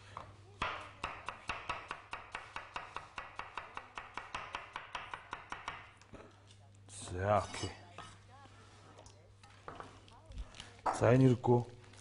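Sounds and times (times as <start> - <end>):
knife chopping on wooden board: 0.6 - 5.9.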